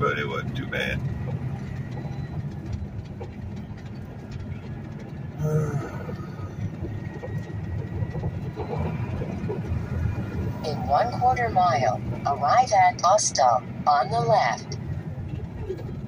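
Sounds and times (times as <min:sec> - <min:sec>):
cab rattles and clicks: 0:00.0 - 0:10.6
truck engine and road rumble: 0:00.0 - 0:16.0.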